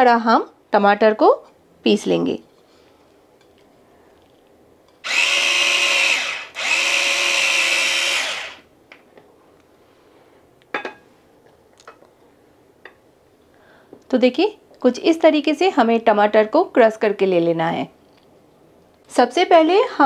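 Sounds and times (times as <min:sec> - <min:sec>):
mini chopper motor whirring: 0:05.0 - 0:08.6.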